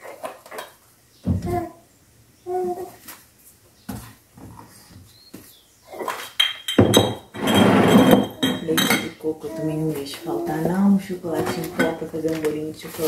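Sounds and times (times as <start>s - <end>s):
plastic packaging crinkling: 9.9s - 13.0s
packets knocking and rustling: 11.3s - 13.0s.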